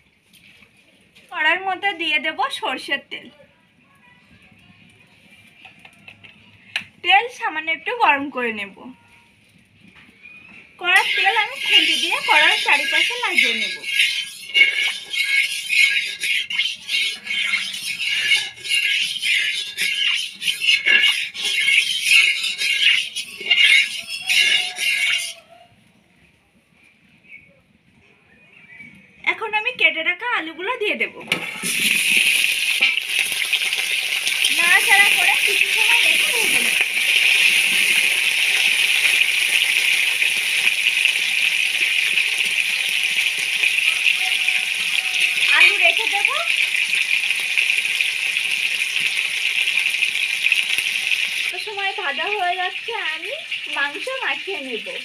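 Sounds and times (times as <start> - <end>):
metal spatula scraping metal pan: 10.8 - 25.4, 31.3 - 55.0
potatoes sizzling in hot oil: 10.8 - 25.4, 31.3 - 55.0.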